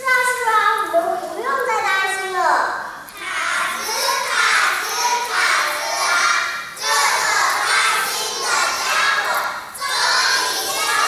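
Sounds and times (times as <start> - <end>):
children speaking in unison: 2.8 - 11.0.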